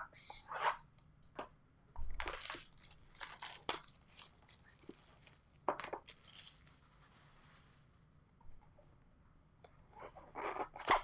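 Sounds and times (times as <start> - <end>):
plastic wrap crinkling and tearing: 2.0 - 7.6.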